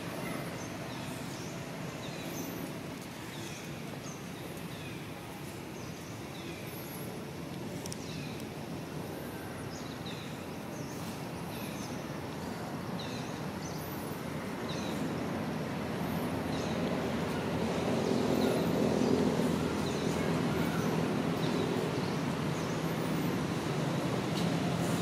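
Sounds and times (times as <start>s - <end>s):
low engine-like rumble: 14.0s - 25.0s.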